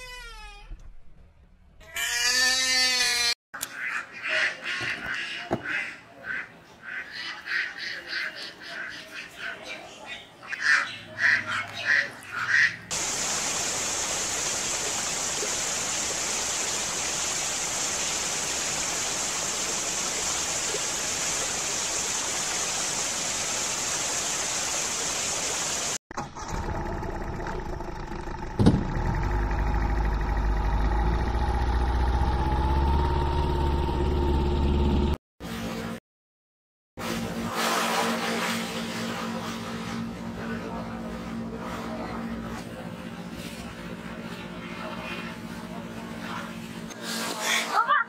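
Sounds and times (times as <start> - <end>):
steady hiss: 12.9 - 26.0
engine hum: 26.2 - 35.2.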